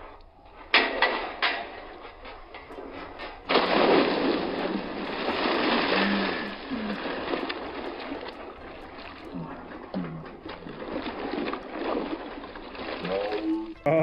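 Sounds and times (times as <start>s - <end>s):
water churning and sloshing: 0.0s - 13.9s
loud splash into water: 3.5s - 7.7s.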